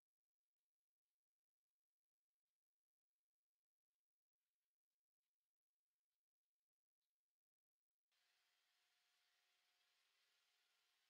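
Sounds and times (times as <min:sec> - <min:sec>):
faint steady hiss: 0:08.1 - 0:11.0.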